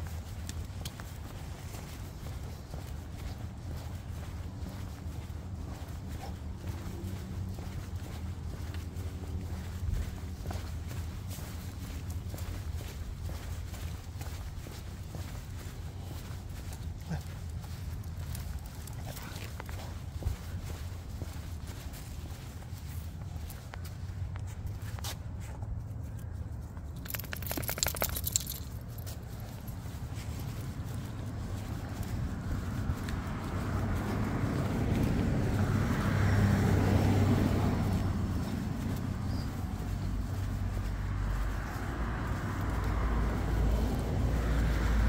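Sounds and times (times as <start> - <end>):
road traffic rumble: 0.0 - 45.0
leash clip jingling: 26.8 - 30.2.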